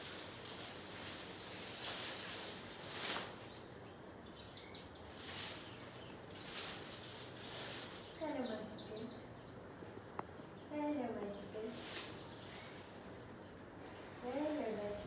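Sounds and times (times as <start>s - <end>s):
branches and hay rustling: 0.0s - 9.3s, 10.8s - 15.0s
faint bird chirps: 11.9s - 12.9s.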